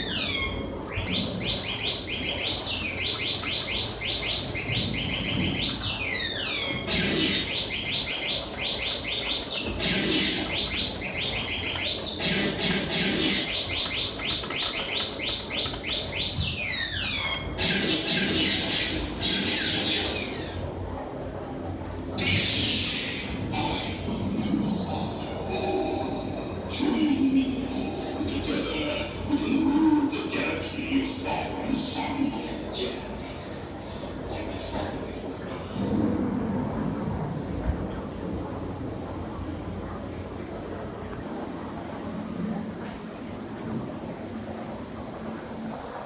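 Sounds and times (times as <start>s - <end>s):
low electronic warble: 0.0s - 29.4s, 35.0s - 46.0s.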